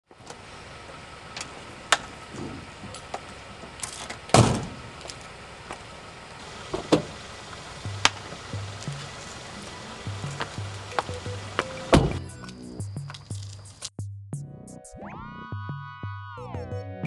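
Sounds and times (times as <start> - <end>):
car door shutting: 1.3 - 5.2, 6.4 - 12.3
high heels clicking on pavement: 4.9 - 5.9, 6.7 - 12.0
rhythmic bass line: 7.8 - 17.0.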